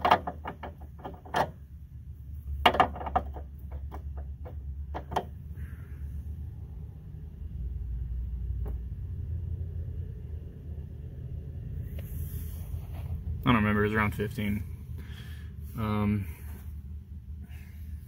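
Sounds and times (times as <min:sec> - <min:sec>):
low rumble: 0:04.6 - 0:18.0.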